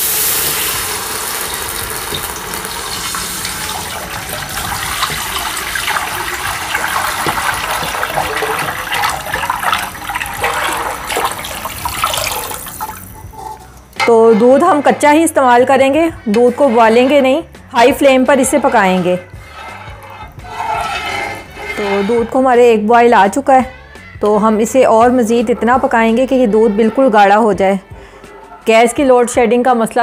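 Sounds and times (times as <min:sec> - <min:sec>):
milk pouring and splashing: 0:00.2 - 0:14.0.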